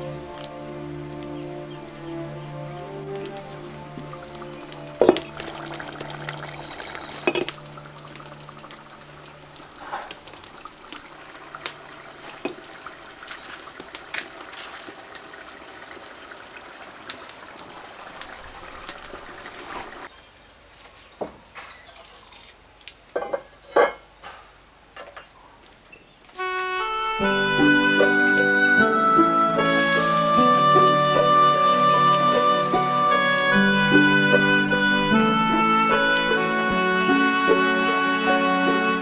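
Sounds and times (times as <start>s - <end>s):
hot oil sizzling: 0.0s - 20.1s, 26.4s - 36.7s
utensils clinking: 3.1s - 8.8s, 29.6s - 34.5s.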